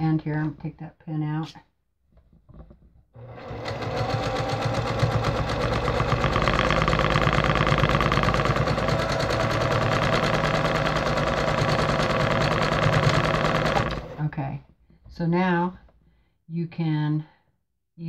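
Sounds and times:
sewing machine running fast: 3.2 - 14.2.

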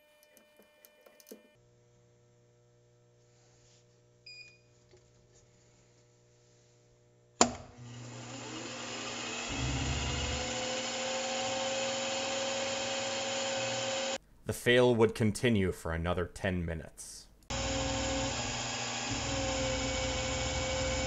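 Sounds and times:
milling machine motor whine: 7.8 - 14.2, 17.5 - 21.0.

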